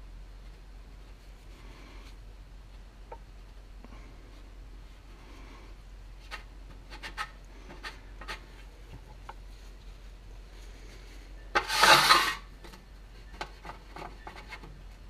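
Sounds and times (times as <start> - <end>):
paper towel rubbing on metal: 11.6 - 12.5.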